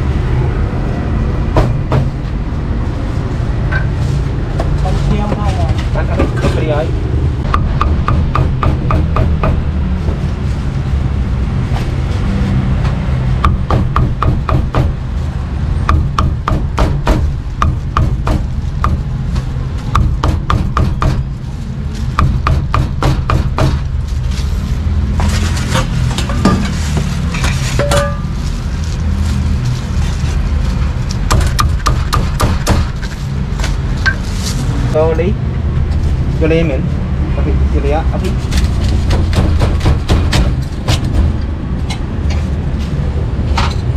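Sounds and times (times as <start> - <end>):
steady low hum: 6.0 - 11.7
cleaver chopping meat on wood: 7.5 - 9.6, 13.5 - 14.9, 15.9 - 19.1, 20.0 - 21.2, 31.3 - 32.9.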